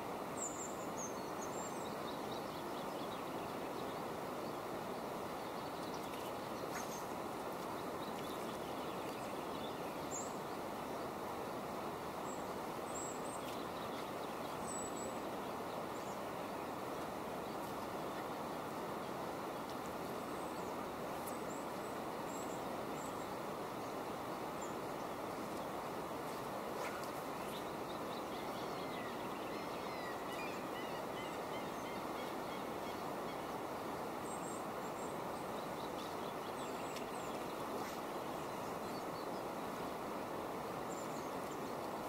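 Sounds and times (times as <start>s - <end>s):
river rushing: 3.2s - 42.0s
faint bird calls: 26.8s - 33.6s.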